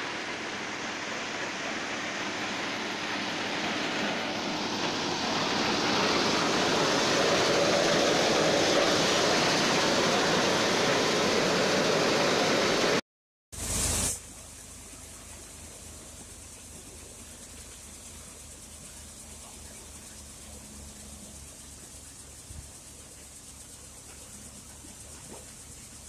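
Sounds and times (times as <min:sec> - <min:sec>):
crop thresher running: 0:00.0 - 0:13.0.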